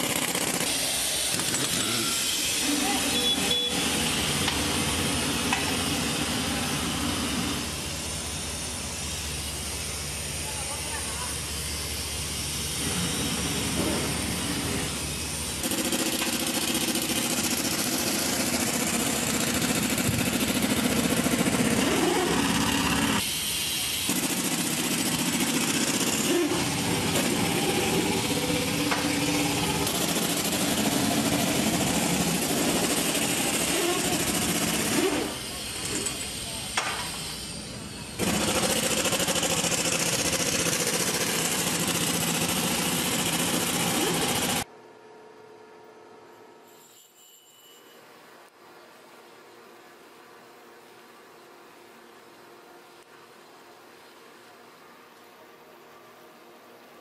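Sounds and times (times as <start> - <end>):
workshop hiss: 0.0 - 44.7
low mechanical hum: 43.9 - 46.7.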